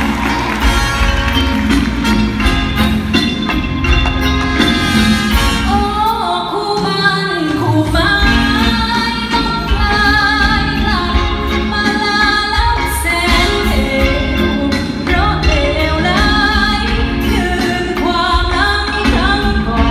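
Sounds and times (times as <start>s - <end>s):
band with strong bass: 0.0s - 19.9s
woman singing into a microphone: 5.7s - 19.9s.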